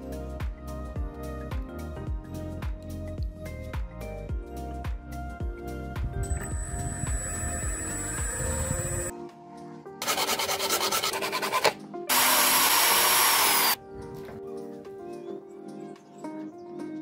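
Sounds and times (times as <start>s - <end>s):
background music: 0.0s - 17.0s
hand drill rasping: 6.4s - 9.1s, 10.0s - 13.8s
hissing grind with whine: 6.4s - 9.1s.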